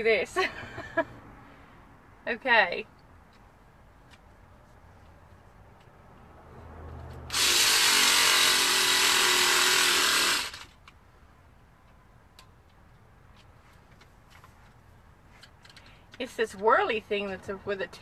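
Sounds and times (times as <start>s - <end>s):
battery-powered reciprocating saw: 7.3s - 10.7s.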